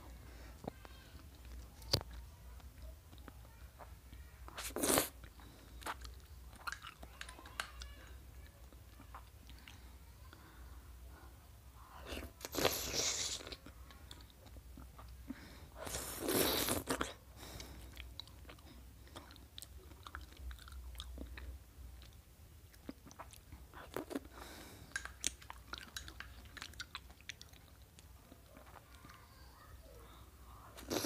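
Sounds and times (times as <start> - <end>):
wet chewing: 4.5 - 7.9, 15.8 - 29.1.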